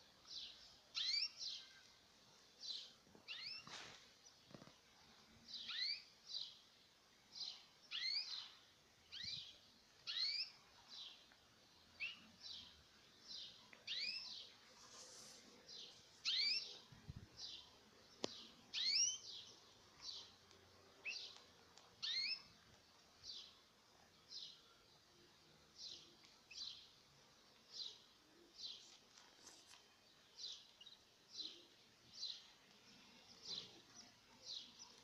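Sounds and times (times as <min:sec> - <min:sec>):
canaries chirping: 0:00.4 - 0:01.6, 0:02.7 - 0:03.8, 0:05.6 - 0:06.1, 0:09.1 - 0:11.1, 0:12.0 - 0:14.6, 0:15.7 - 0:22.6.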